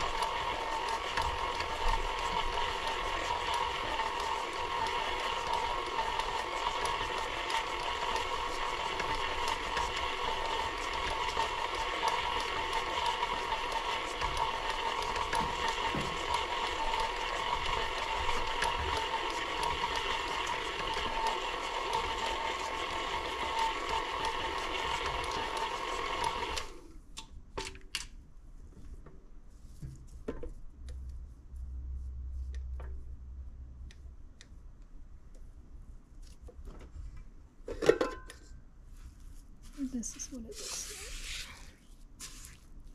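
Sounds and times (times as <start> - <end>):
stand mixer motor whine: 0.0 - 26.8.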